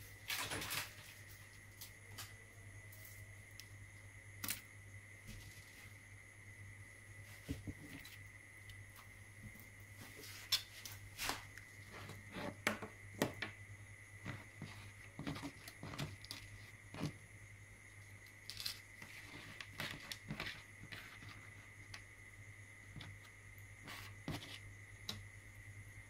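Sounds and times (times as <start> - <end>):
faint steady hum: 0.0 - 26.0
small parts clicking and tapping: 4.4 - 4.7, 18.2 - 21.1.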